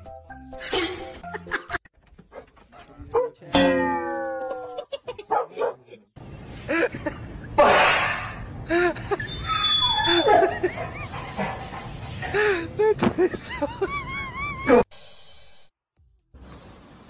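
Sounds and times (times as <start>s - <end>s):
dog whining and barking: 9.2s - 10.6s.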